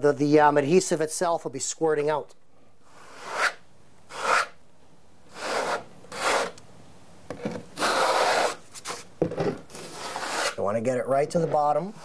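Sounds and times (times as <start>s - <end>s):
trowel scraping adhesive: 3.0s - 4.6s, 5.3s - 6.6s, 7.4s - 10.6s, 11.3s - 12.0s.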